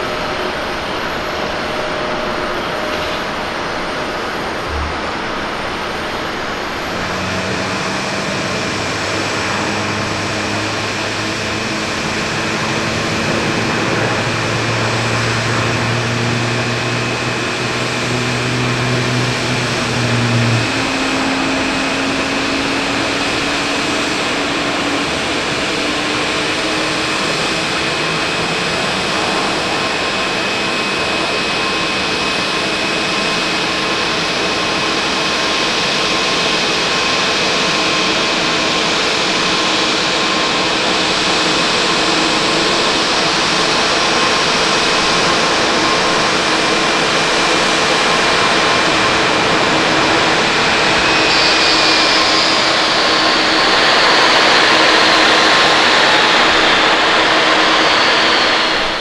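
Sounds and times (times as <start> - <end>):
jet engines rushing: 0.0 - 59.0
rising low hums: 3.6 - 31.0.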